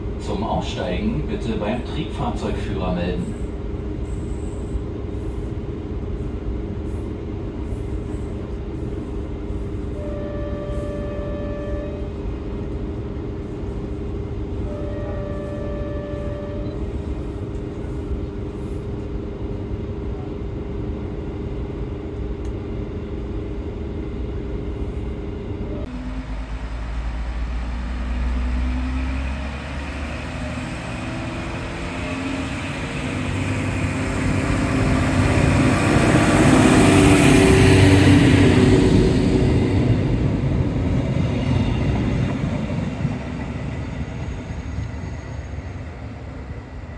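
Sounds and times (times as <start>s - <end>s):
diesel train passing: 0.0s - 46.9s
railcar interior drone: 0.0s - 46.9s
brief tone: 14.7s - 16.8s.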